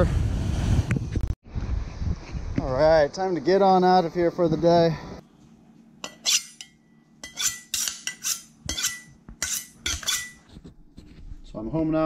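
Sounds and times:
knife scraping on honing steel: 0:06.0 - 0:10.6.

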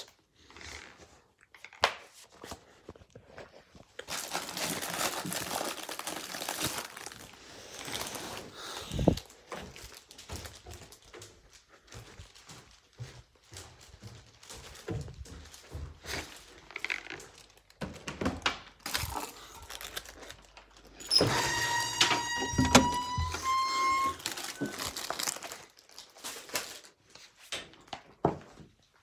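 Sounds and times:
foil rustling and crinkling: 0:03.5 - 0:17.8, 0:18.8 - 0:21.0, 0:23.2 - 0:27.8
high creaking squeal: 0:21.0 - 0:25.1.

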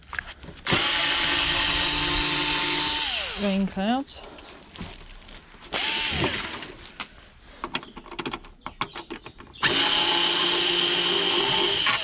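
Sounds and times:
cordless screwdriver motor whine: 0:00.7 - 0:03.4, 0:05.8 - 0:06.6.

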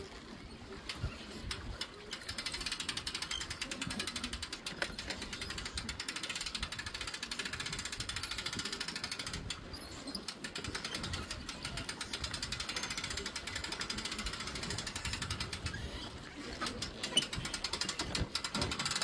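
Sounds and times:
winch ratchet clicking: 0:00.9 - 0:19.0.

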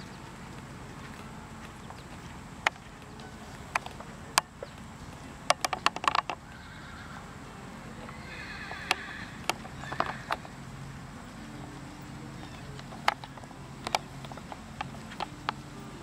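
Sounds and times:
sharp clicks: 0:00.0 - 0:06.6, 0:08.1 - 0:11.0, 0:12.1 - 0:16.0
horse whinnying: 0:06.3 - 0:07.4, 0:08.1 - 0:10.6.

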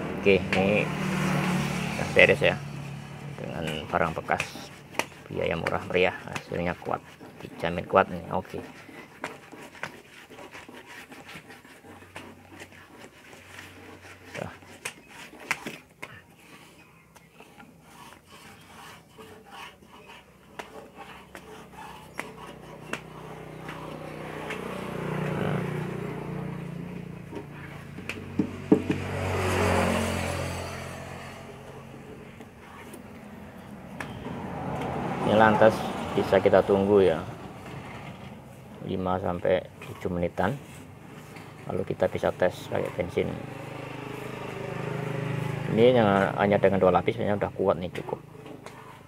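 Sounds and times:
vehicles passing: 0:00.0 - 0:49.0
hands rubbing a patch: 0:02.7 - 0:25.5.

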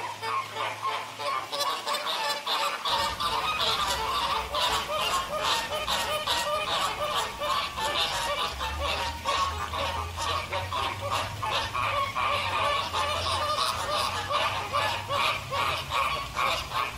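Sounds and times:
flamingos honking: 0:00.0 - 0:16.9.

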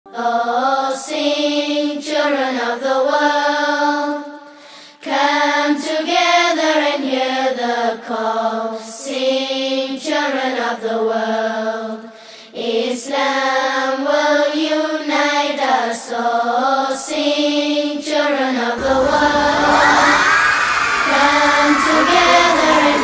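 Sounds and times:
person singing unaccompanied: 0:21.0 - 0:23.0.

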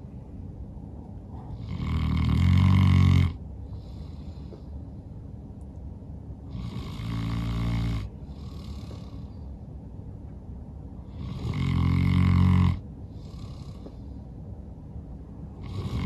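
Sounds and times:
dog snoring loudly: 0:01.4 - 0:04.4, 0:06.5 - 0:09.3, 0:11.0 - 0:14.0, 0:15.6 - 0:16.0
dog breathing softly: 0:03.6 - 0:05.2, 0:08.2 - 0:09.6, 0:13.0 - 0:14.5.

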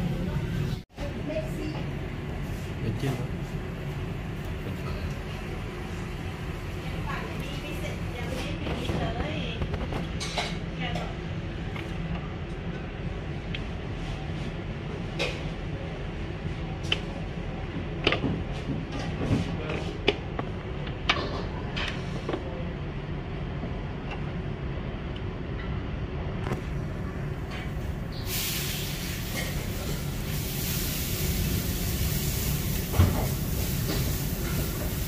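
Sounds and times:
vegetables sizzling in a wok: 0:28.1 - 0:35.0.

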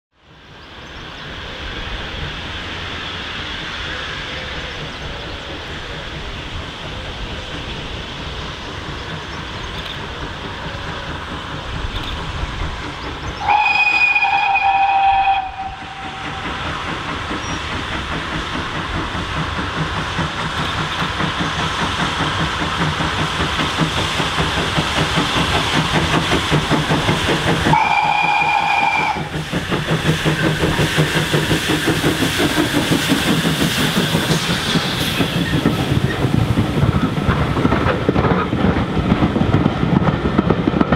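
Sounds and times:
steam locomotive exhaust beats: 0:00.2 - 0:40.9
steam whistle blasts: 0:13.4 - 0:16.6, 0:27.7 - 0:29.3.

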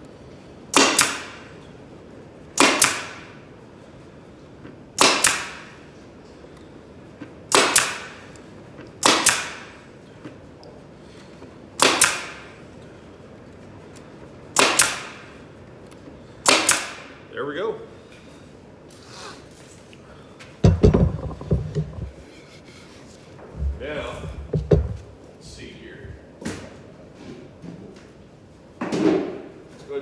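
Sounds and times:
air stapler firing: 0:00.7 - 0:01.4, 0:02.6 - 0:03.3, 0:05.0 - 0:05.8, 0:07.5 - 0:08.2, 0:09.0 - 0:09.7, 0:11.8 - 0:12.5, 0:14.6 - 0:15.2, 0:16.4 - 0:17.1.

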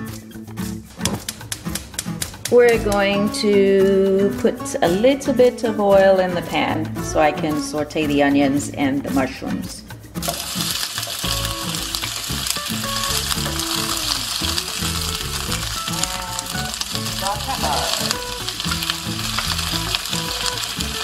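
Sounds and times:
onions sizzling in oil: 0:10.2 - 0:21.0.

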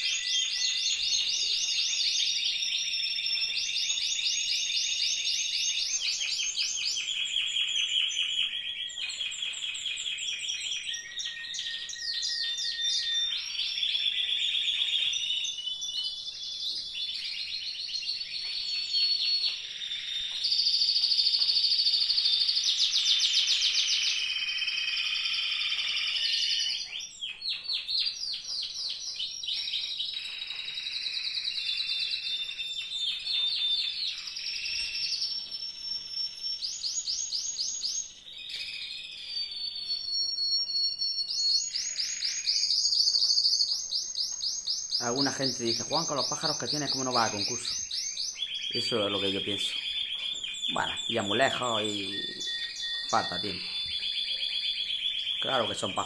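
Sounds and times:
canaries singing: 0:00.0 - 0:56.0.

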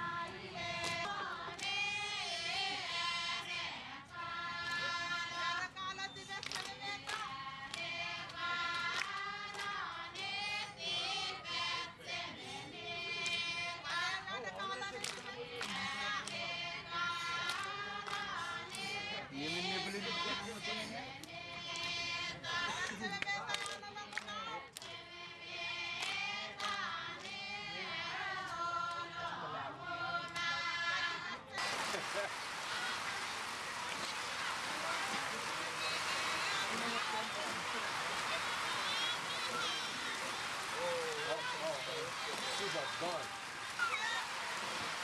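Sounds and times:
women singing a chant: 0:00.0 - 0:45.0
sharp hand claps: 0:00.8 - 0:01.8, 0:06.4 - 0:10.3, 0:15.0 - 0:16.4, 0:17.4 - 0:19.0, 0:22.8 - 0:24.9, 0:31.6 - 0:45.0.

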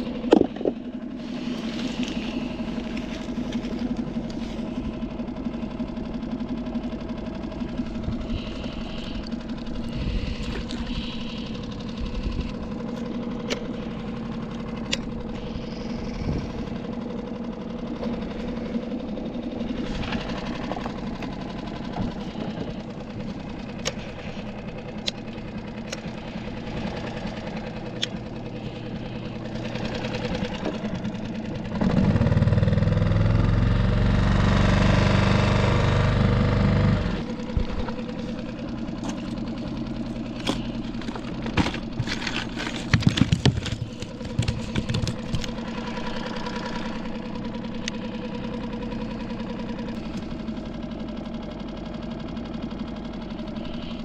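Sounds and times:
outboard motor running: 0:00.0 - 0:54.0
sharp knocks and clicks: 0:41.4 - 0:45.6.

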